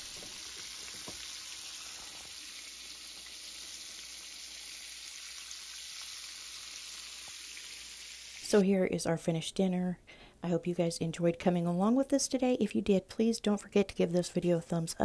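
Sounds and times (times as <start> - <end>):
meat sizzling in hot oil: 0.0 - 8.5.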